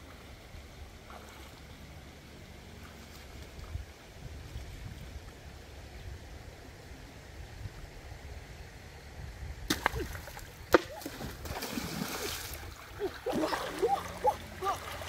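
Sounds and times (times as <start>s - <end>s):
water splashing: 9.7s - 15.0s
river rushing: 10.0s - 15.0s
person crying out: 13.0s - 14.9s.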